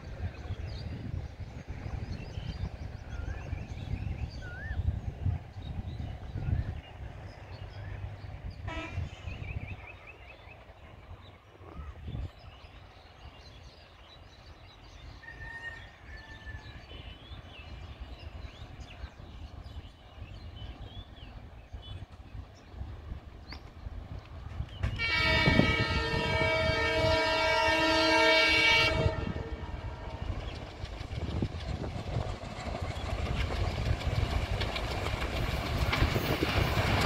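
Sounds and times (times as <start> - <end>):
birds chirping: 16.8 - 37.0.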